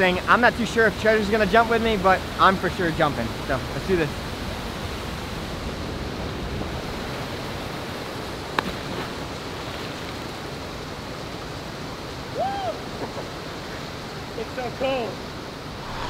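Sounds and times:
rising-and-falling vocal call: 15.7s - 16.0s.

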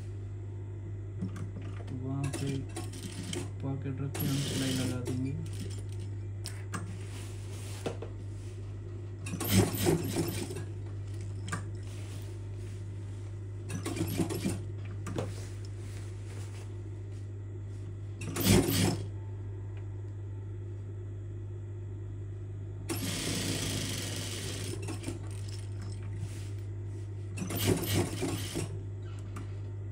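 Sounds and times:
steady low hum: 0.0s - 29.9s
sewing machine stitching: 4.2s - 5.8s, 9.3s - 10.7s, 18.2s - 19.1s, 22.9s - 25.6s, 27.4s - 28.7s.

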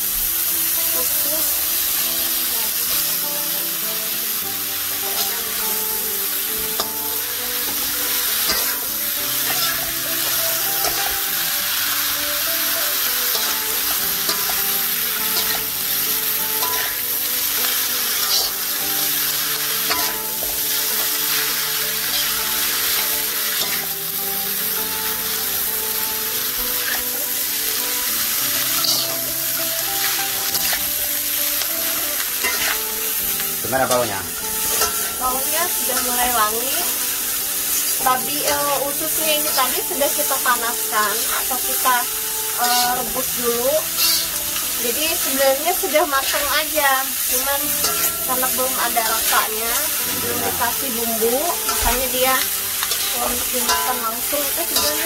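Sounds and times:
background music: 0.0s - 55.0s
food sizzling in a wok: 0.0s - 55.0s
metal spatula scraping pan: 6.6s - 11.3s, 13.2s - 17.0s, 18.0s - 23.9s, 26.7s - 27.2s, 28.6s - 30.9s, 32.4s - 33.4s, 34.5s - 35.2s, 42.6s - 43.2s, 43.8s - 44.4s, 49.9s - 55.0s.

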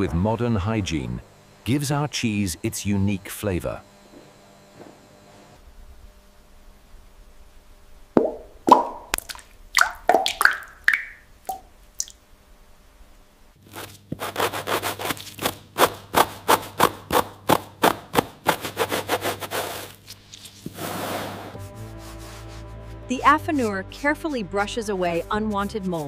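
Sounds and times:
water drops plopping: 8.2s - 12.2s
bristle brush scrubbing rind: 17.9s - 26.0s.

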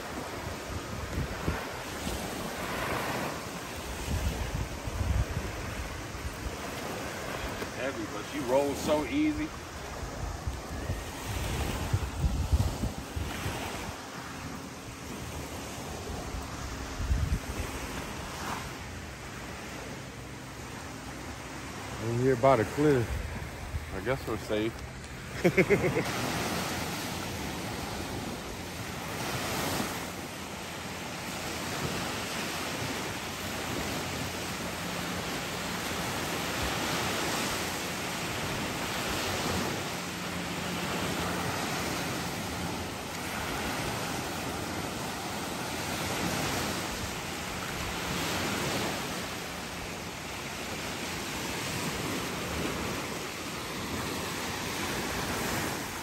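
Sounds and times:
wind on microphone: 0.0s - 7.8s, 9.4s - 18.9s
waves breaking on sandy beach: 0.0s - 56.0s.

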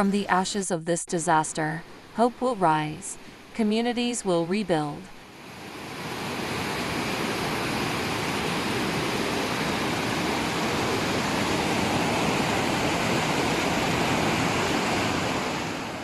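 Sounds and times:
floodwater rushing: 5.3s - 16.0s.

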